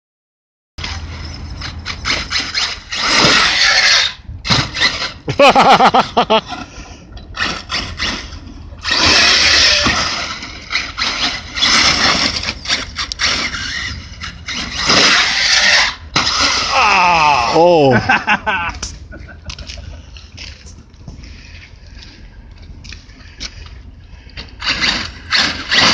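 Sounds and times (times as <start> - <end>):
toy truck electric motor whining: 0.8 - 5.3, 7.3 - 16.8, 24.5 - 25.9.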